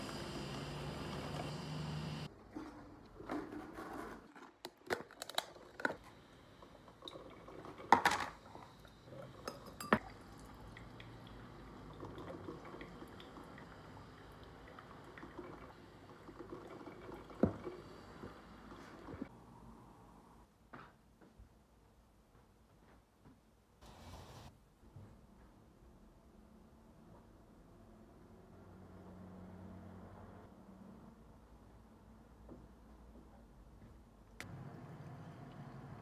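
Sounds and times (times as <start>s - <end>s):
glass and dishes clinking: 9.4s - 10.1s.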